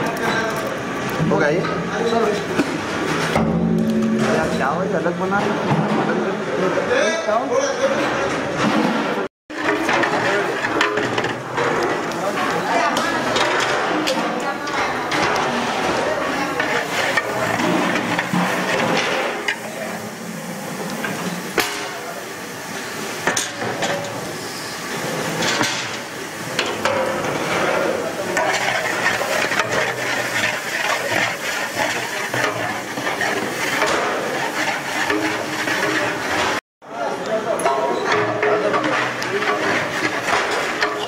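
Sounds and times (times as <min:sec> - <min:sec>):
hot oil sizzling in pot: 0:00.0 - 0:05.4, 0:09.5 - 0:41.0
ladle scraping pot: 0:09.5 - 0:22.1, 0:22.8 - 0:36.6, 0:37.2 - 0:41.0
ladle clanking against pot: 0:26.6 - 0:36.6, 0:37.3 - 0:41.0.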